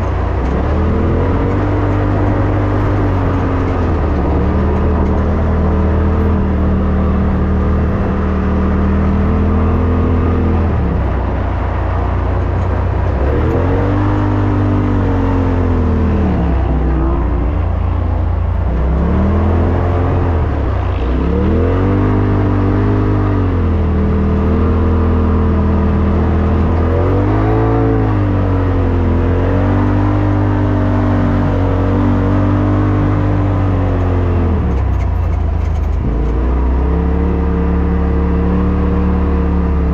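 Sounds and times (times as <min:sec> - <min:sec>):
engine revving under throttle: 0:00.0 - 0:39.9.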